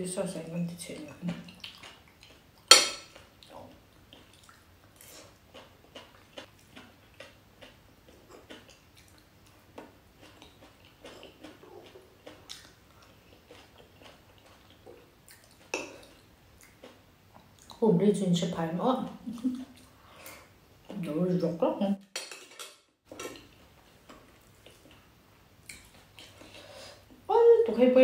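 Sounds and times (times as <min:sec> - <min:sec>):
faint chewing: 0:00.9 - 0:17.8, 0:23.1 - 0:27.2.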